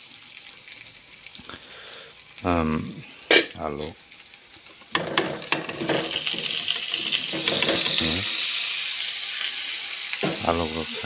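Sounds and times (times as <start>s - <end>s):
potatoes sizzling in hot oil: 0.0s - 11.0s
plate clinking against pan: 3.3s - 3.6s, 5.0s - 8.1s.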